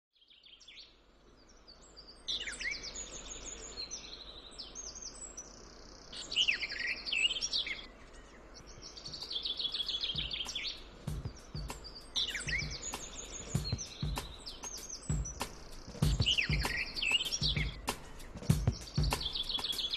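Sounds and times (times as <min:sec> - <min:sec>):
songbirds trilling and chirping: 0:00.1 - 0:19.9
footsteps on dry leaves: 0:10.1 - 0:19.9.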